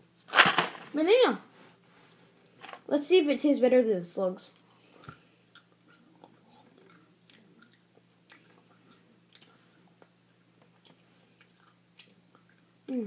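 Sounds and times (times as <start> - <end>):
faint chewing: 4.6 - 12.8.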